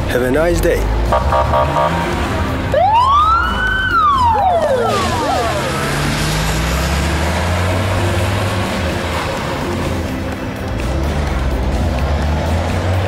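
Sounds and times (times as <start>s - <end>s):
police siren wail: 1.1s - 7.2s.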